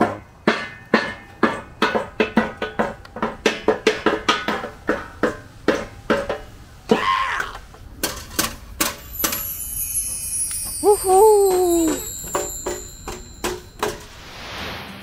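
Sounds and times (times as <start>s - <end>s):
child striking percussion instrument: 8.8s - 14.0s.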